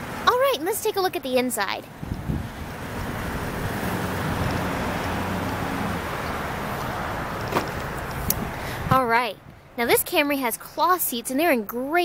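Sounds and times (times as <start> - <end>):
traffic rumble: 0.0 - 12.0
wind on microphone: 1.9 - 6.0, 8.0 - 9.6.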